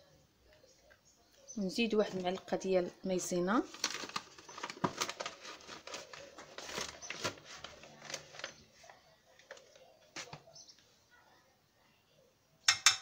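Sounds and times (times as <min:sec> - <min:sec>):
cardboard packets being handled: 0:03.6 - 0:10.5
metal spoon tapping a saucepan: 0:12.7 - 0:13.0.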